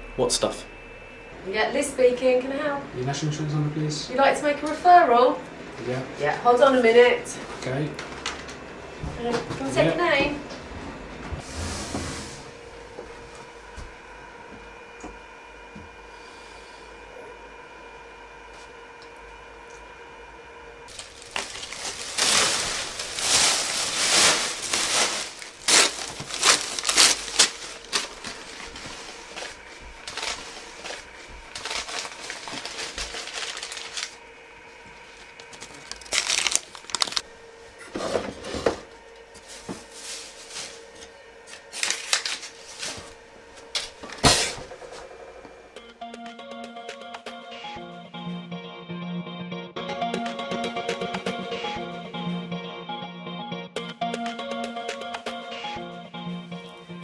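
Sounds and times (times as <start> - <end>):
faint steady hum: 0.0 - 49.4
rustling and crinkling: 20.9 - 34.2, 34.8 - 37.2, 38.0 - 43.2.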